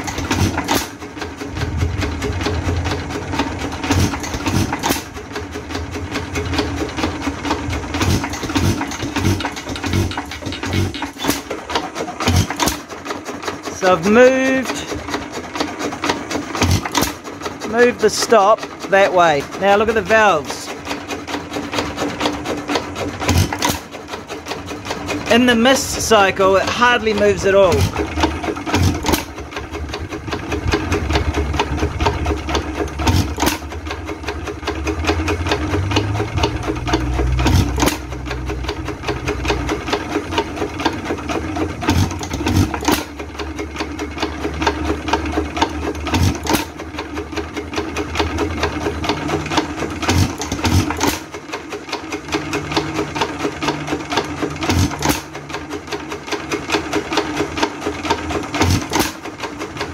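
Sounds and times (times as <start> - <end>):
engine valve gear clatter: 0.0 - 59.9
engine firing strokes: 25.3 - 43.2.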